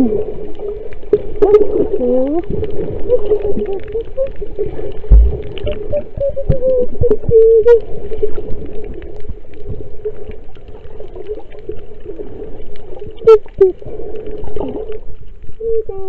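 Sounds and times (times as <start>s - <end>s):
woman humming underwater: 0.0s - 0.5s, 1.2s - 8.6s, 13.1s - 16.0s
water and bubbles crackling: 0.0s - 16.0s
low thump: 5.1s - 5.8s.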